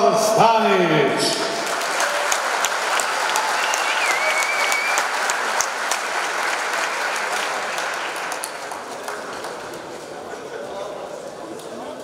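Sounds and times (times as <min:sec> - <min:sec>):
crowd applauding: 0:01.3 - 0:10.8.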